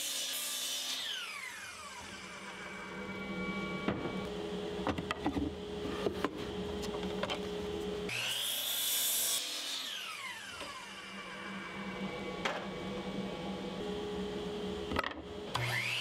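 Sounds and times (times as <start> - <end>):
miter saw cutting wood: 0.0 - 4.3, 8.1 - 12.3, 15.5 - 16.0.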